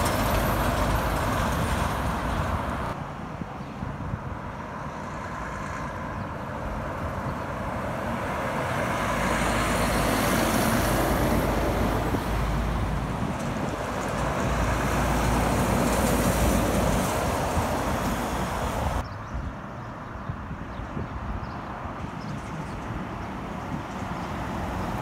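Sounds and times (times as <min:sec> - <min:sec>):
diesel truck engine: 0:00.0 - 0:03.0.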